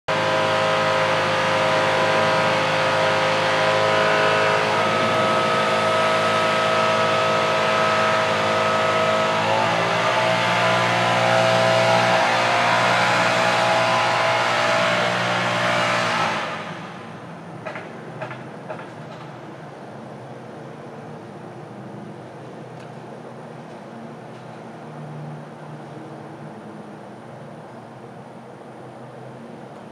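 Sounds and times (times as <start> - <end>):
leaf blower running: 0.1 - 17.1.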